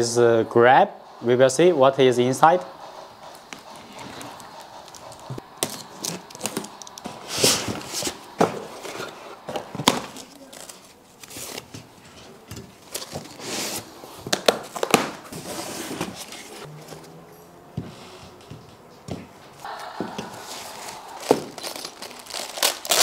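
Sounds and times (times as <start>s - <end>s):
packaging rustling and crinkling: 5.6s - 16.6s, 20.5s - 23.0s.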